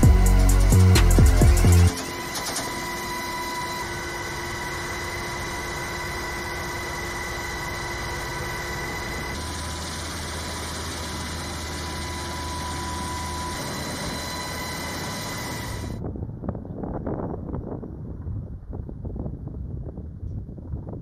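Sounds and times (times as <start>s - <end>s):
helicopter engine and rotor rush: 0.0s - 16.1s
low hum: 0.0s - 21.0s
turbine and gearbox whine: 0.0s - 21.0s.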